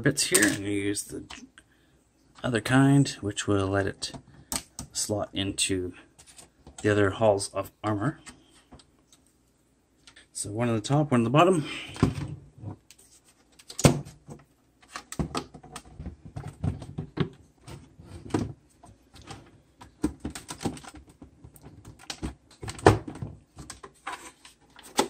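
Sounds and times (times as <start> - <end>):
plastic pieces clicking and scraping: 0.3 - 0.6.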